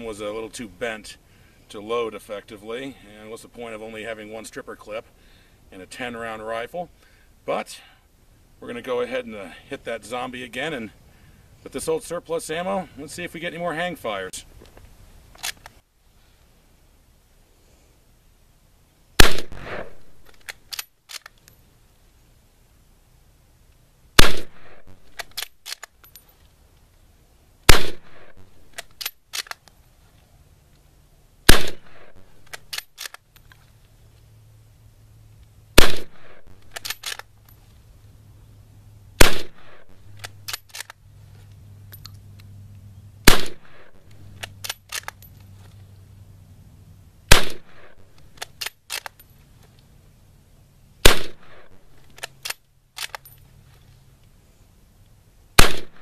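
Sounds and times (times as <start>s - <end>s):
rifle shots: 19.2s - 20.2s, 24.2s - 25.4s, 27.7s - 28.5s, 31.5s - 32.8s, 35.8s - 37.2s, 39.2s - 40.6s, 43.2s - 45.0s, 47.3s - 48.1s, 51.0s - 51.8s, 55.6s - 56.0s
rifle bolt clicks: 19.2s - 21.6s, 25.0s - 26.2s, 28.3s - 29.8s, 32.1s - 33.6s, 36.2s - 37.3s, 40.1s - 41.0s, 43.3s - 45.3s, 47.3s - 49.2s, 51.0s - 53.4s.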